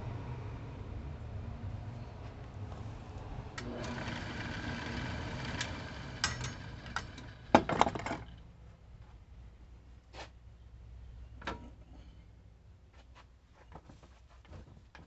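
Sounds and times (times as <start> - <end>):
wood lathe motor whirring: 3.6 - 8.3.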